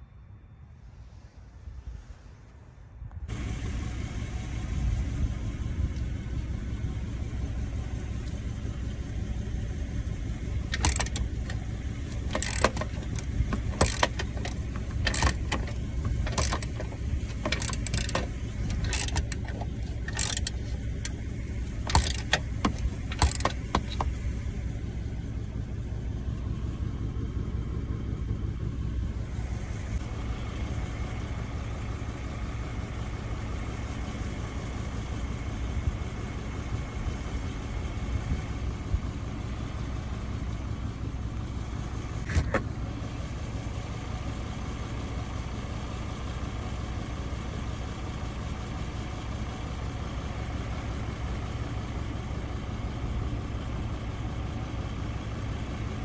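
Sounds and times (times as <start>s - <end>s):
low engine rumble: 0.0s - 56.0s
ratchet wrench clicking: 10.7s - 21.2s, 21.8s - 24.2s.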